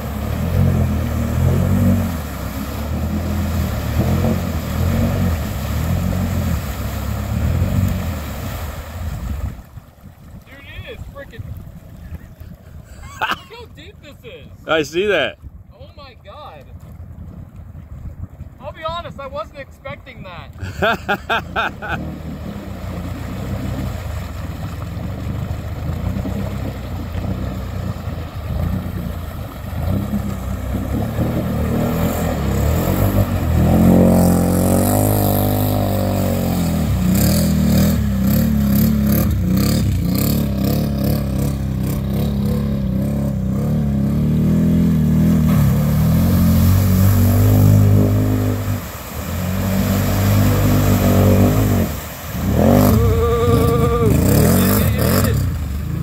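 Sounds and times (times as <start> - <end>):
atv engine revving: 0.0 - 8.2, 21.5 - 56.0.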